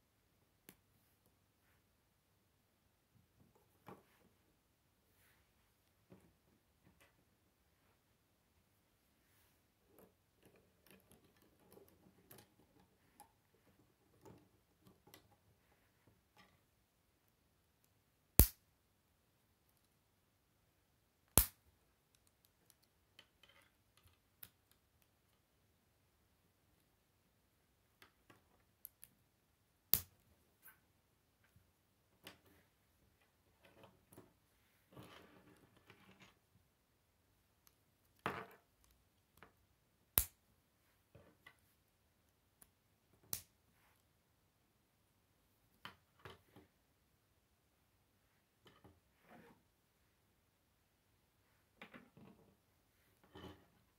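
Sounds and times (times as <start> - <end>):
sharp plastic snaps: 18.4 - 18.6.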